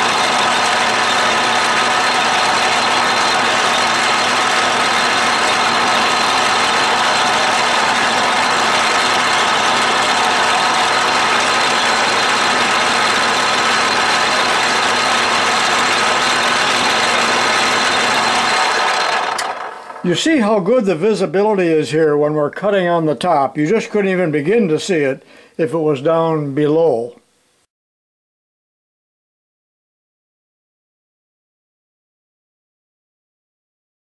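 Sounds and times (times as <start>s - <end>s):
lathe machining noise: 0.0s - 20.3s.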